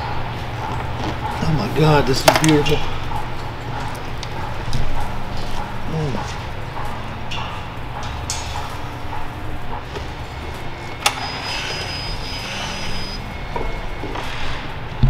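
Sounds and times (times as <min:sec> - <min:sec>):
thin high whine: 0:10.2 - 0:14.8.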